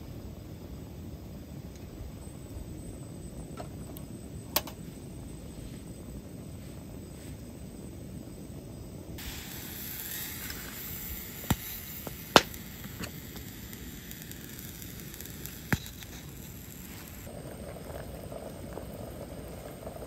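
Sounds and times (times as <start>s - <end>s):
camping stove roaring: 0.7s - 20.0s
steam hissing from pot: 9.2s - 20.0s.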